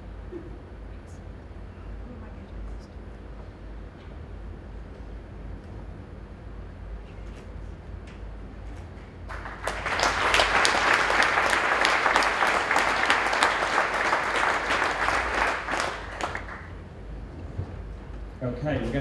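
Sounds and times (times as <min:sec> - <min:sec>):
audience applauding: 0:09.3 - 0:16.8.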